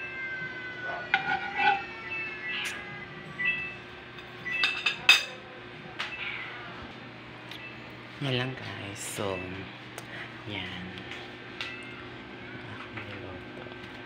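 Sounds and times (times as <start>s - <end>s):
kitchenware clinking: 1.0s - 1.8s, 4.2s - 5.4s.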